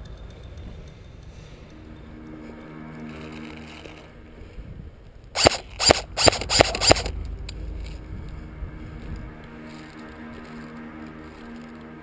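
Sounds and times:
airsoft rifle shots: 0:05.4 - 0:07.1.

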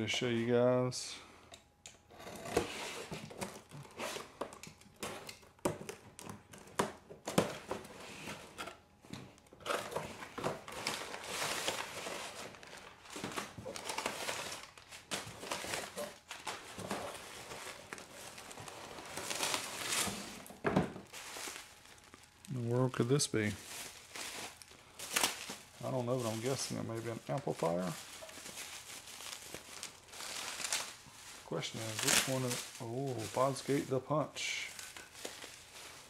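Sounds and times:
newspaper crinkling: 0:09.6 - 0:36.0.

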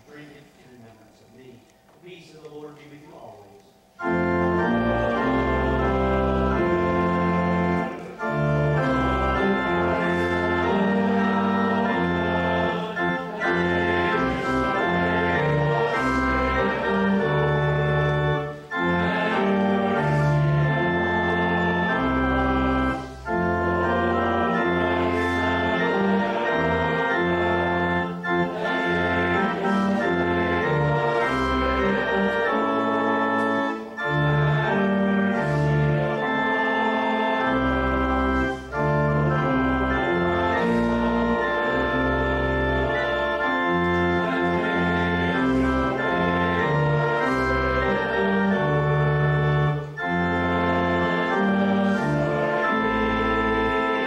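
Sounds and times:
church organ playing chords: 0:00.0 - 0:54.0.

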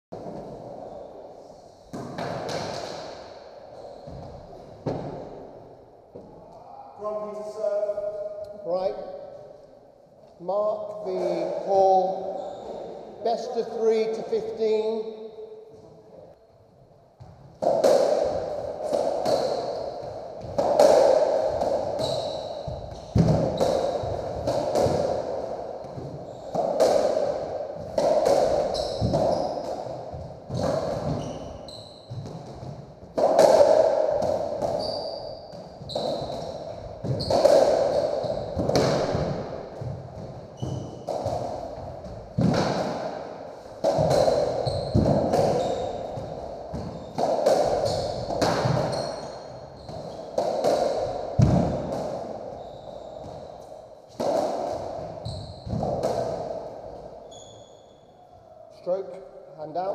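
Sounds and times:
racquets hitting ball: 0:01.9 - 0:03.4, 0:17.2 - 0:57.5
ball slapping off walls and floor: 0:01.9 - 0:05.5, 0:17.2 - 0:57.2.

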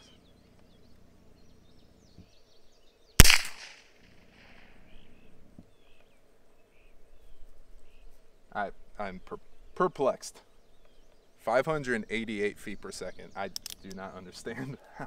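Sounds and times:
revolver gunshot: 0:03.2 - 0:04.7.

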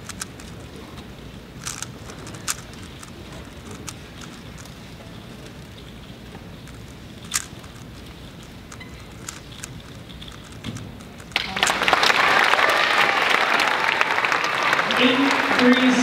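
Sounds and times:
puzzle cube clicking: 0:00.0 - 0:11.9
audience applauding: 0:11.4 - 0:16.0.

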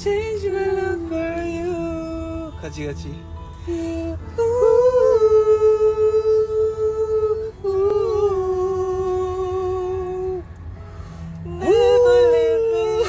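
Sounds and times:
car ride rumble: 0:00.0 - 0:13.0
person singing long notes: 0:03.7 - 0:10.4.

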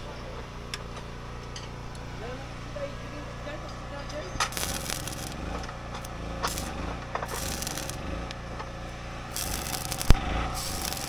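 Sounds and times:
arc welder crackling: 0:03.8 - 0:11.0
sharp metal clicks: 0:04.4 - 0:08.4, 0:09.4 - 0:11.0.

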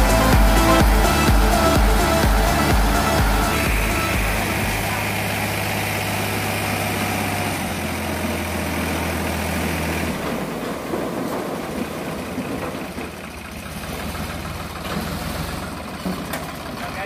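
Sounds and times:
tractor engine running: 0:00.0 - 0:17.0
soil sliding off trailer: 0:04.9 - 0:16.8.

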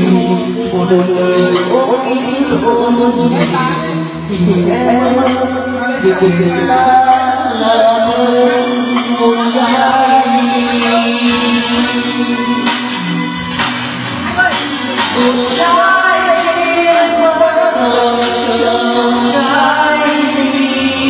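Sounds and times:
man singing into a microphone: 0:00.0 - 0:13.3, 0:14.7 - 0:21.0
backing track music: 0:00.0 - 0:21.0.

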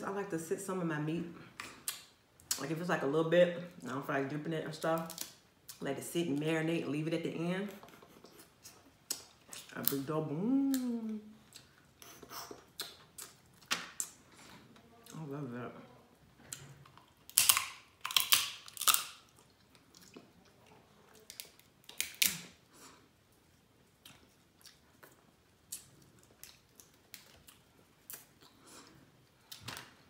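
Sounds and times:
chewing: 0:16.4 - 0:22.0, 0:23.3 - 0:29.7
crab shells cracking: 0:16.9 - 0:20.2, 0:21.2 - 0:22.6.

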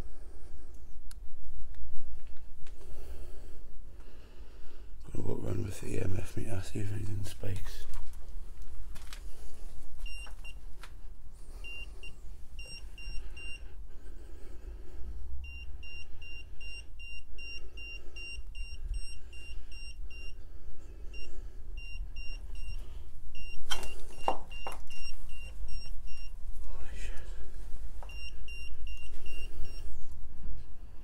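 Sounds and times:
electronic meter beeping: 0:10.0 - 0:10.6, 0:11.6 - 0:13.6, 0:15.4 - 0:20.4, 0:21.2 - 0:26.4, 0:28.0 - 0:30.0.

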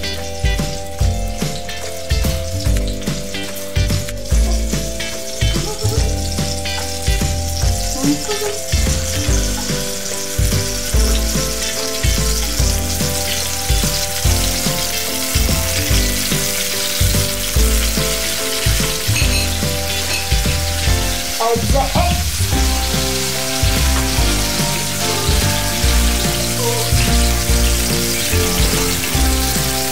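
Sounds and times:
background music with bass: 0:00.0 - 0:29.9
tomatoes sizzling in oil: 0:00.0 - 0:29.9
stirring in frying pan: 0:01.4 - 0:21.6.

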